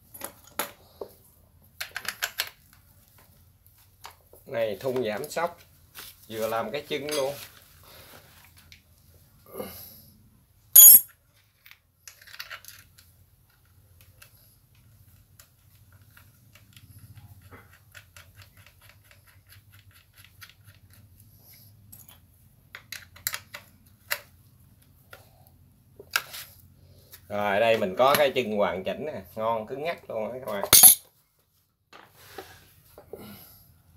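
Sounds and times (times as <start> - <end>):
metal bolts and wrench clinking: 10.8 - 11.1, 30.6 - 31.1.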